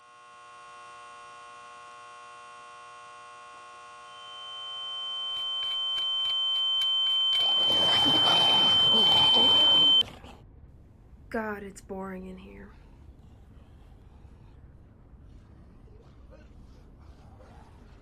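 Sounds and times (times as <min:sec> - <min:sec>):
high-pitched whine: 0:03.8 - 0:10.0
electronic drone: 0:04.0 - 0:10.0.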